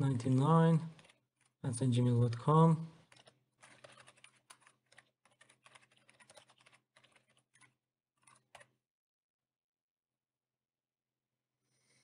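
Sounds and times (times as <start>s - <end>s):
faint keyboard typing: 0.0s - 8.7s.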